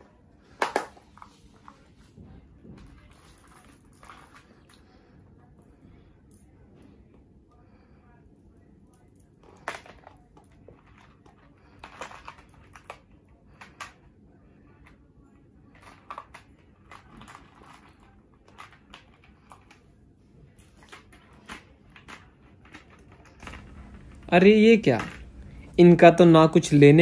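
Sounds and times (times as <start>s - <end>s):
bead necklaces clicking and clinking: 2.8s - 4.8s, 20.6s - 25.9s.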